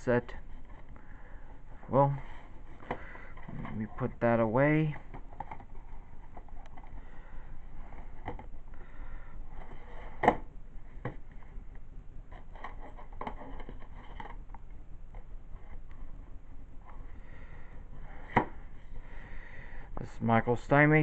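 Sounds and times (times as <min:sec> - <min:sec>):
plastic cases handled: 0:02.1 - 0:04.2, 0:04.8 - 0:07.0.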